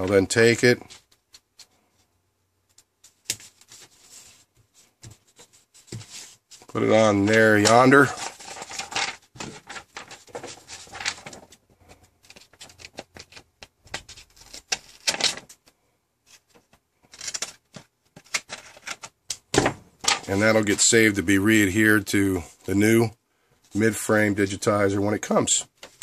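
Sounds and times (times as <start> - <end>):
paper rustling: 2.7 - 15.7.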